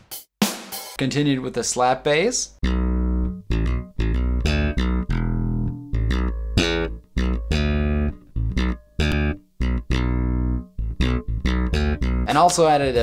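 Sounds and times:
funky slap bass line: 0:02.6 - 0:13.0.

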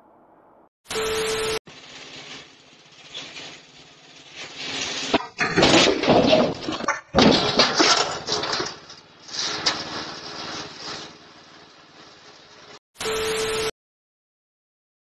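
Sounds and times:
steady beep: 0:00.9 - 0:01.6, 0:13.0 - 0:13.7
tiller crashing onto gravel: 0:01.7 - 0:12.7
tv static: 0:12.6 - 0:13.7.

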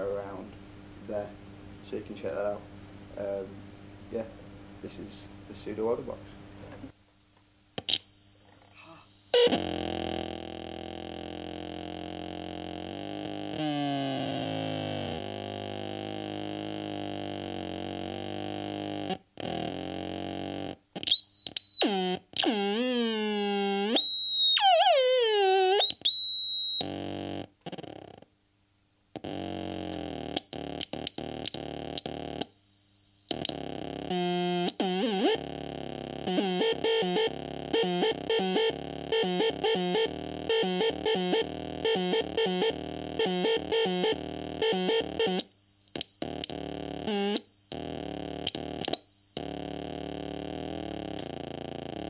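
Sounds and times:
high piercing bleeps: 0:08.0 - 0:09.5
buzzing electronic drones: 0:29.3 - 0:52.0.

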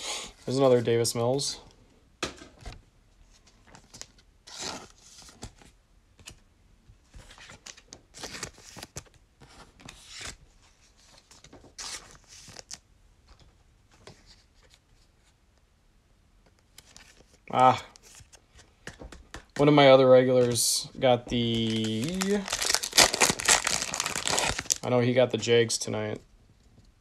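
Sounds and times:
foil wrapper rustling and tearing: 0:21.4 - 0:24.8.

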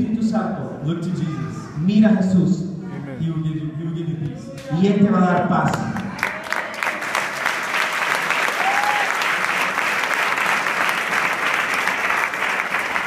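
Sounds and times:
congregation applauding: 0:05.7 - 0:13.0.

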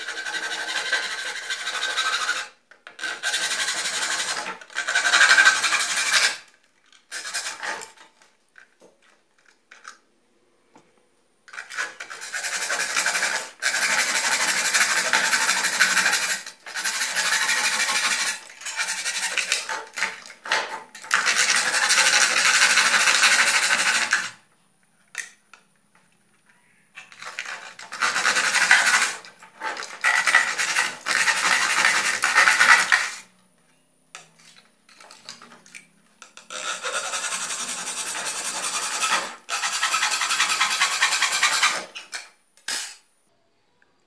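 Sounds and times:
hacksaw scraping through circuit board: 0:11.5 - 0:24.3, 0:27.1 - 0:33.2, 0:36.4 - 0:42.3.

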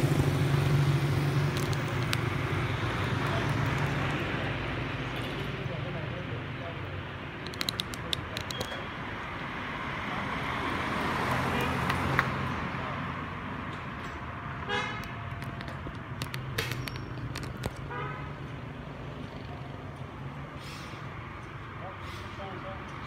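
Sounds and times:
vehicles passing: 0:00.0 - 0:23.0
sharp clicks: 0:01.4 - 0:02.6, 0:07.4 - 0:08.9, 0:15.0 - 0:17.9
vehicle horn toot: 0:14.7 - 0:15.1.

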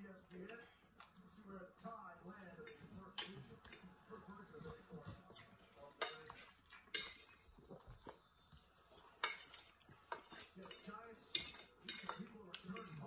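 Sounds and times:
fork clinking on a plate: 0:05.4 - 0:08.2, 0:09.1 - 0:13.0.

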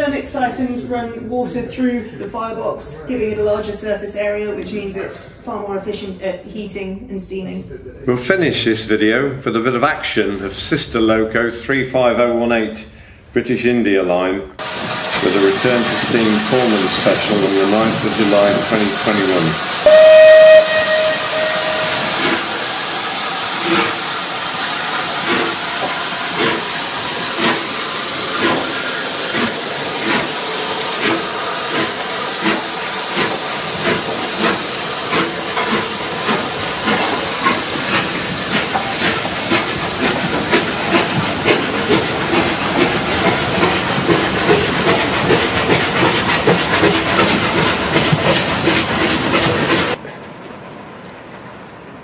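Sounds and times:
steam locomotive beats: 0:14.6 - 0:50.0
steam locomotive hissing: 0:14.6 - 0:50.0.

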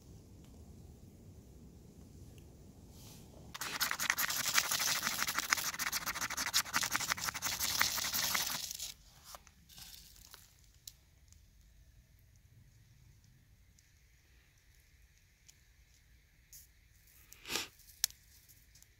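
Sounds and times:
rod scraping harshly: 0:03.6 - 0:08.9.

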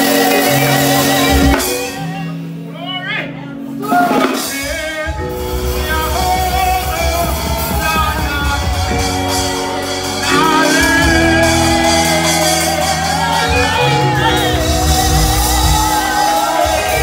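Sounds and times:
amplified instrumental accompaniment: 0:00.0 - 0:17.0
person singing into microphone: 0:03.8 - 0:17.0.

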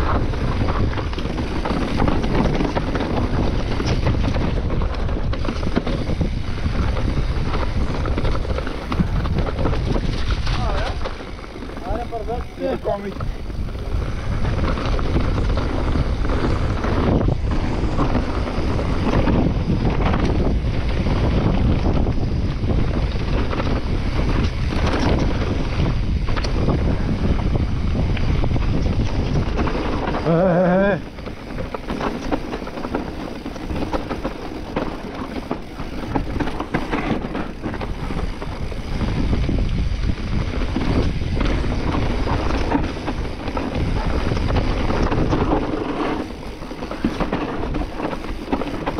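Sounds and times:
bike rattling on dirt trail: 0:00.0 - 0:48.9
wind buffeting microphone: 0:00.0 - 0:48.9.

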